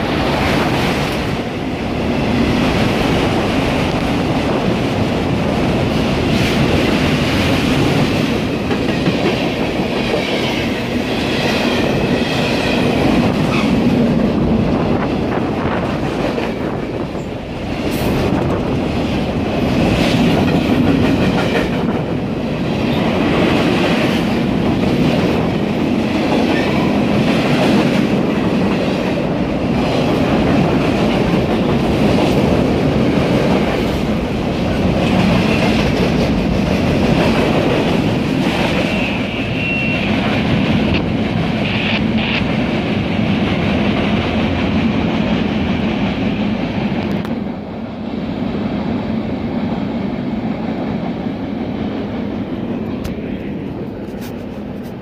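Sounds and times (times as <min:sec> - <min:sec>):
freight train rolling past: 0:00.0 - 0:55.0
high wheel squeal: 0:38.9 - 0:40.2.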